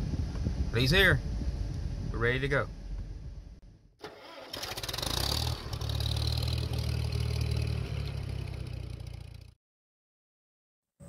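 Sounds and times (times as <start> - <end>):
engine cranking and idling: 4.0 - 9.5.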